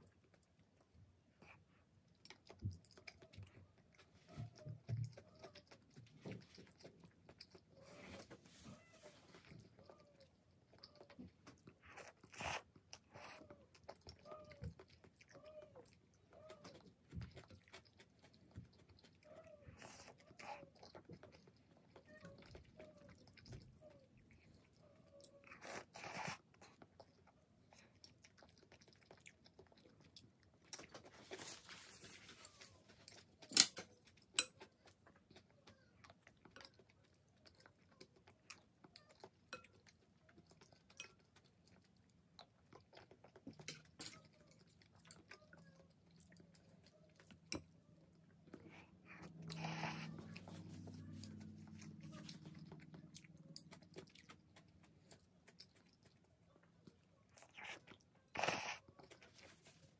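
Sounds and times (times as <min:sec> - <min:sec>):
chewing with wet mouth clicks: 0:00.0 - 0:08.3, 0:09.3 - 0:31.6, 0:32.8 - 0:59.7
noodles slurped: 0:57.3 - 0:59.5.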